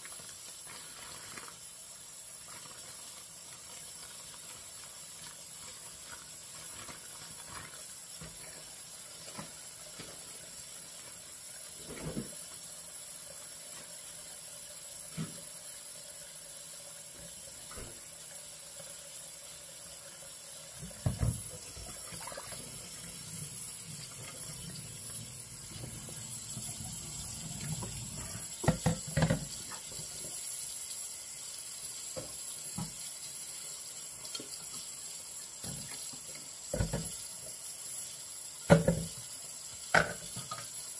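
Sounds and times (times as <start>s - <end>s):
tap water running into sink: 0.0s - 40.9s
knocks and clatters in sink: 11.8s - 12.4s, 20.8s - 22.6s, 25.7s - 29.9s, 35.6s - 37.2s, 38.7s - 39.2s, 39.9s - 40.8s.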